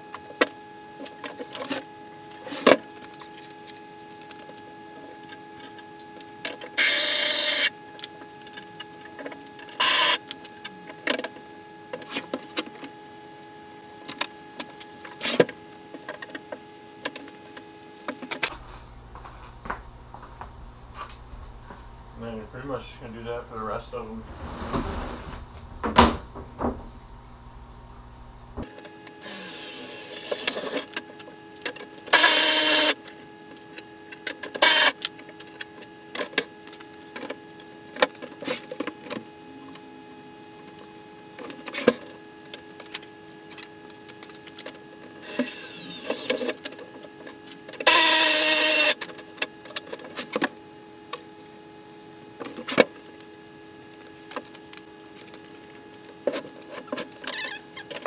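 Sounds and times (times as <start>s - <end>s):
steady hum: 0.0s - 58.0s
power drill boring into plastic: 6.8s - 7.7s, 9.8s - 10.2s, 32.1s - 33.0s, 34.6s - 35.0s, 45.2s - 46.6s, 47.8s - 49.0s.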